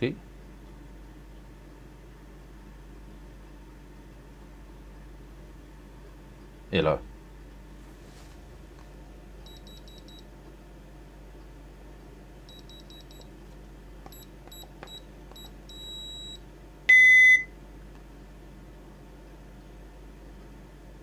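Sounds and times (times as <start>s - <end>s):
keypad beeping: 9.5s - 10.2s, 12.5s - 13.3s, 14.1s - 17.5s
loud low beep: 15.7s - 17.5s.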